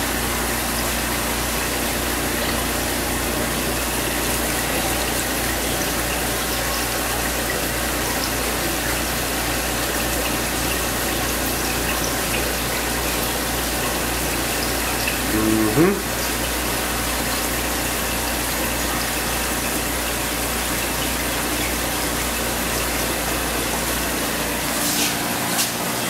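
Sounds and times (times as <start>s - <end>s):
pump hum: 0.0s - 26.0s
water rushing into aquarium: 0.0s - 26.0s.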